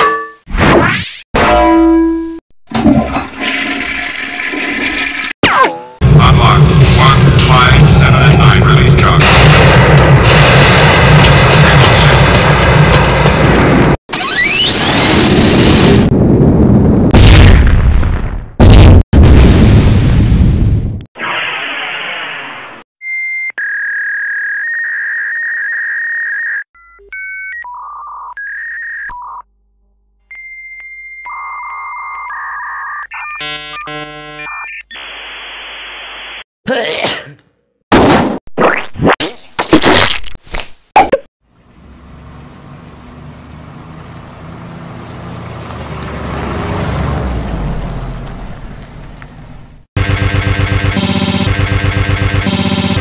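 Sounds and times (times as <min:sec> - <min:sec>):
mechanical hum and rumble: 0:47.4 - 0:53.0.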